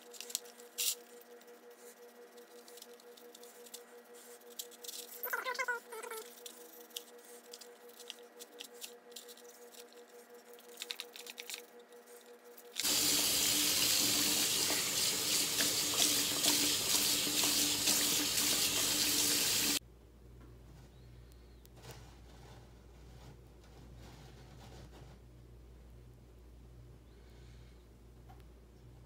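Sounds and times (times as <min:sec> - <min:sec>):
toothbrush scrubbing wood: 0:00.2 - 0:05.2, 0:06.0 - 0:19.8
tap water running into sink: 0:12.8 - 0:19.8.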